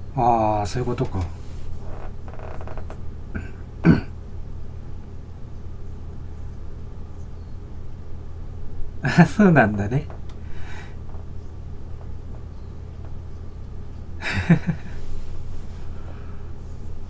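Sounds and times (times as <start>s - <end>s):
steady low hum: 0.0s - 17.0s
person making throaty sound: 3.3s - 4.1s.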